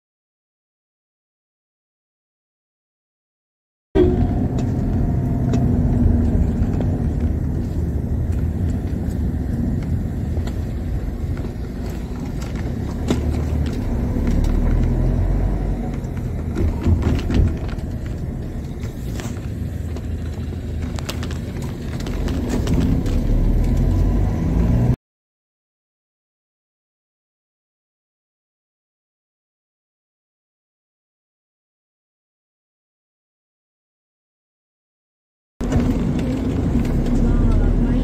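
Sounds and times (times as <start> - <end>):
vehicle rumbling: 4.0 - 25.0, 35.6 - 38.0.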